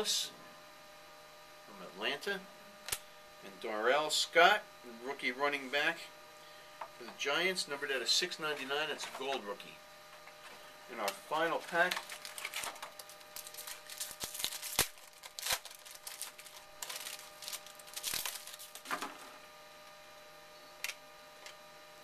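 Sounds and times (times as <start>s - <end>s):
faint electrical hum: 0.0s - 22.0s
card pack tearing and crinkling: 11.0s - 19.2s.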